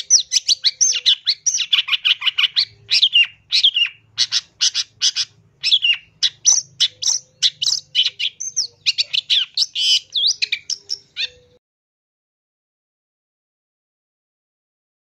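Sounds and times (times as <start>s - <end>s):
bird chattering and whistling: 0.0s - 11.6s.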